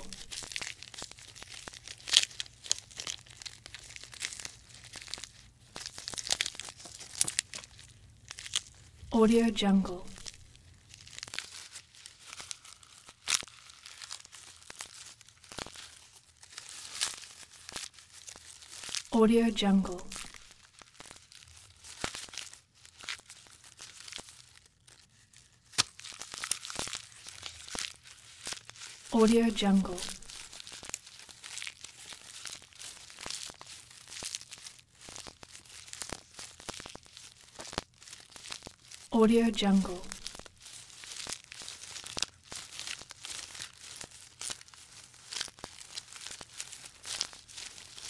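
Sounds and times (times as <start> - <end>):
giraffe stripping and chewing leaves: 0.0 - 9.0, 10.1 - 19.2, 20.1 - 29.2, 29.9 - 39.2, 39.8 - 48.0
twigs snapping: 0.2 - 8.8, 25.7 - 28.7, 40.2 - 48.0
soft rustle of foliage: 10.0 - 19.2, 20.0 - 29.2, 29.9 - 39.2, 39.9 - 48.0.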